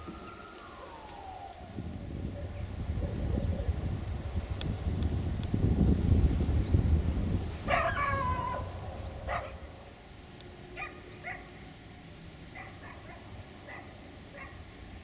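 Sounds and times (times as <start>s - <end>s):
low rumble: 0.0s - 11.2s
dog barking: 7.7s - 8.7s, 9.3s - 9.7s, 10.8s - 11.6s, 12.5s - 14.6s.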